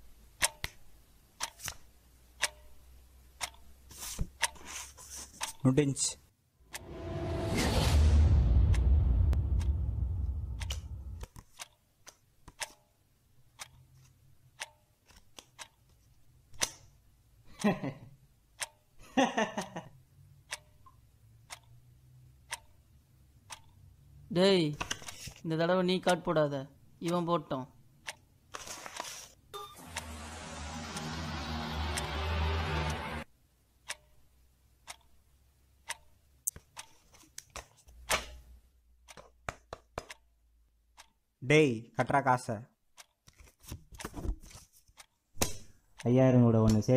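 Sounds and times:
low rumble: 6.7 - 11.2
background music: 29.6 - 33.3.

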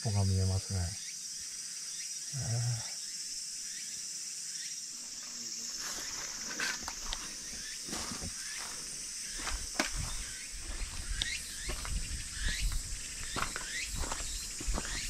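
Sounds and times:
insect drone: 0.0 - 15.0
footsteps on leaves and dirt: 5.1 - 15.0
wind rumble on microphone: 9.5 - 15.0
bird chirps: 10.0 - 15.0.

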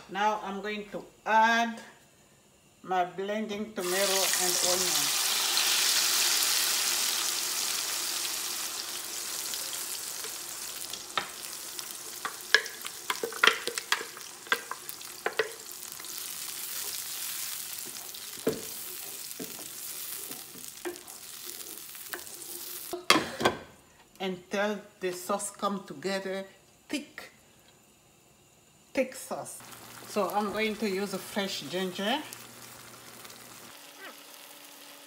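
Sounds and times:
sauce sizzling in hot oil: 3.8 - 23.0, 27.8 - 35.0
wooden spoon knocking pot: 12.2 - 15.6.

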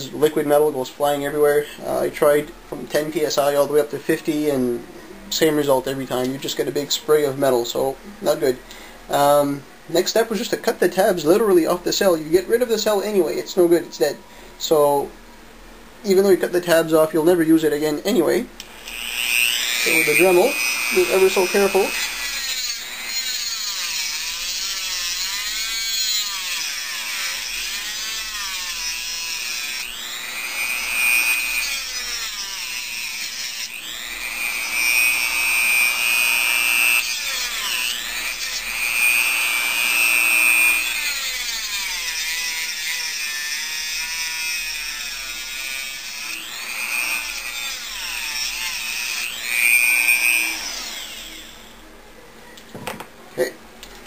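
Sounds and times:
rotary tool cutting metal: 18.6 - 51.6.

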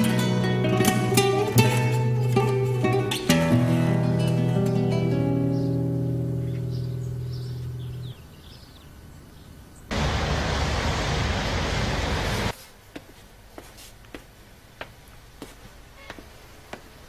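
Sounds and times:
guitar music: 0.0 - 8.2
city street traffic: 9.9 - 17.0.

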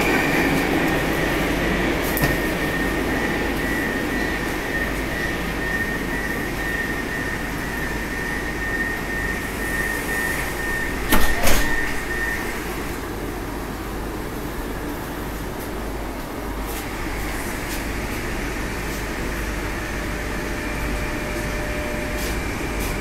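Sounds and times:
metro car hum: 0.0 - 23.0
sliding doors shutting with knocks: 11.0 - 12.4.

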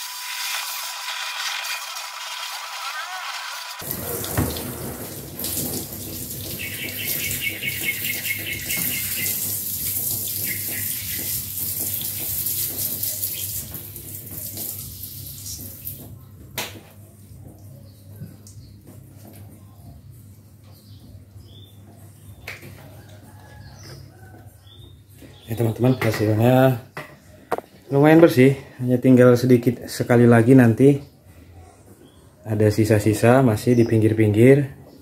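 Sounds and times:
hose spraying water on car: 0.0 - 16.1.

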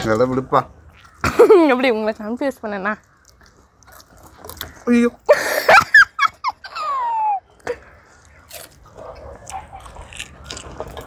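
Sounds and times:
chewing crisp food: 3.0 - 5.1, 7.6 - 11.0.

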